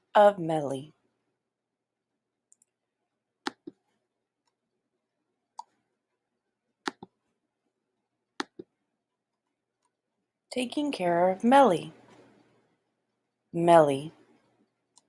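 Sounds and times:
computer mouse clicks: 3.5 - 3.8, 6.9 - 7.2, 8.4 - 8.7.

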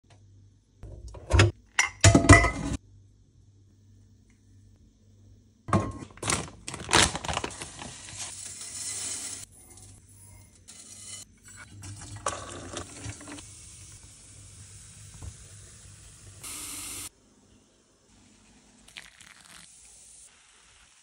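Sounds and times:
water poured into metal sink: 11.4 - 14.0.

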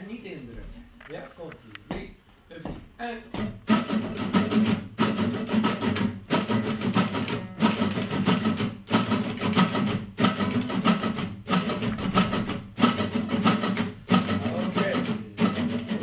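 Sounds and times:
damped guitar strumming: 3.3 - 16.0.

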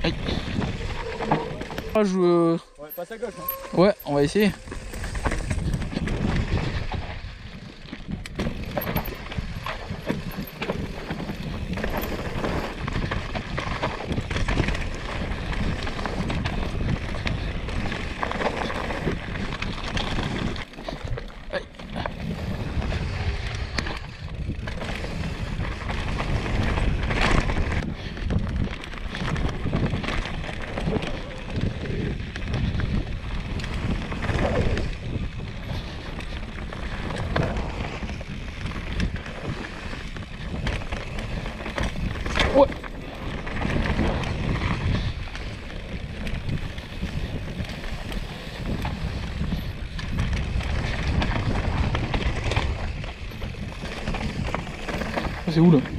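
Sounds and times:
bike tyres crunching over stones: 0.0 - 55.9
wind buffeting microphone: 0.0 - 55.9
bike knocks and rattles: 4.0 - 55.9.

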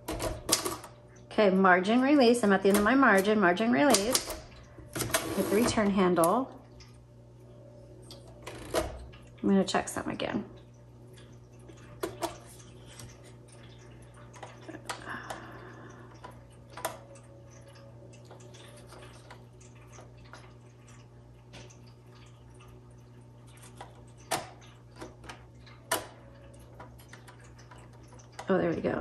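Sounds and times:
low steady hum: 0.0 - 29.0
typewriter mechanism clicks and knocks: 2.7 - 6.3.

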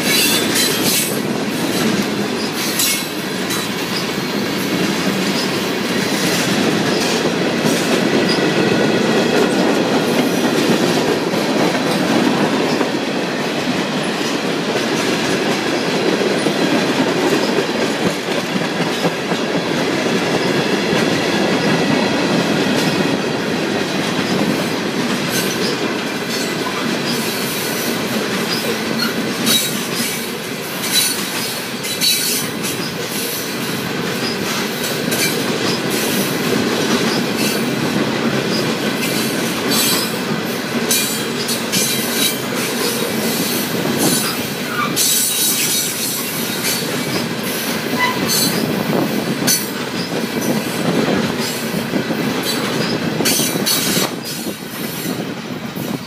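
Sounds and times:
train wheels rumbling and clicking: 0.0 - 56.0
high-pitched wheel squeal: 48.0 - 48.6.

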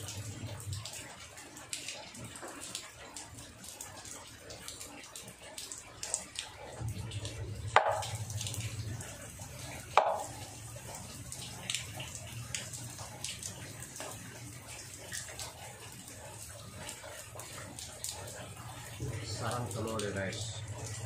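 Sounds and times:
water dripping and splashing: 0.0 - 21.0
sharp knocks: 7.8 - 8.2, 10.0 - 10.3.

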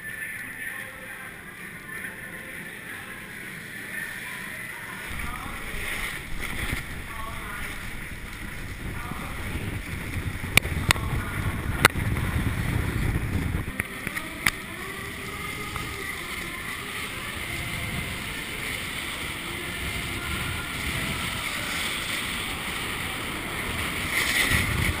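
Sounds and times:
skis scraping over snow: 4.9 - 25.0
wind rushing over microphone: 5.1 - 25.0.

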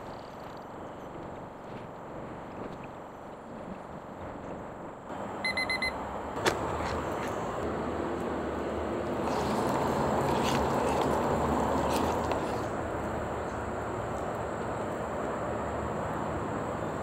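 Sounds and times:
kitchen timer beeps: 5.4 - 6.0.

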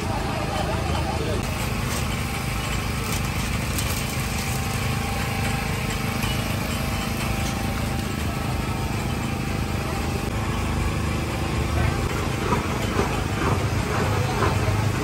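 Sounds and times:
small engine droning: 0.0 - 15.0.

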